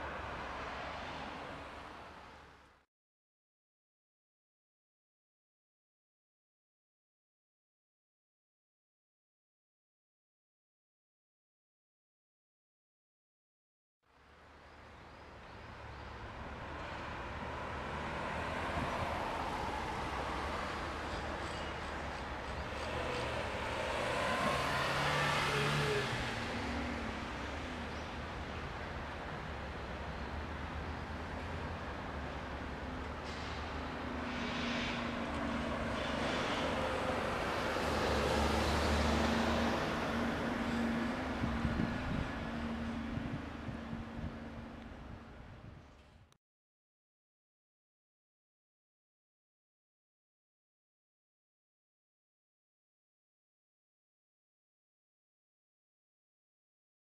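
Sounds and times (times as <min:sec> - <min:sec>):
vehicle engine hum and tyre noise: 0:00.0 - 0:02.8, 0:14.1 - 0:46.4
vehicle passing close: 0:22.8 - 0:27.4.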